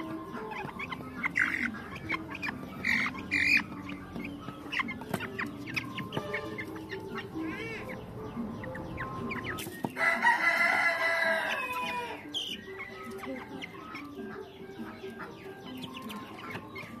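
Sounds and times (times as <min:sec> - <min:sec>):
chickens clucking: 0:00.0 - 0:17.0
rooster crowing: 0:10.0 - 0:12.3.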